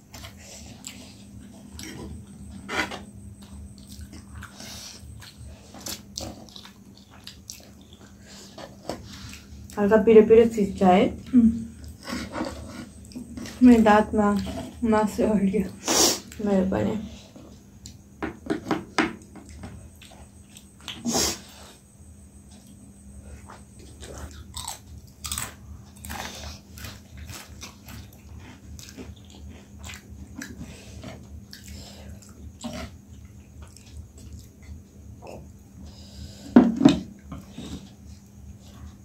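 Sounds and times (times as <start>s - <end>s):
noodles chewed and slurped: 3.4s - 9.8s, 23.3s - 35.4s.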